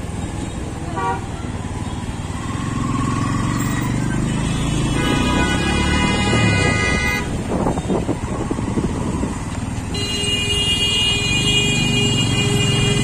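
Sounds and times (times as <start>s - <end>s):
city road traffic: 0.0s - 13.0s
motorbike engine and road noise: 0.0s - 13.0s
vehicle horn: 0.9s - 1.3s, 4.3s - 7.4s, 9.9s - 13.0s.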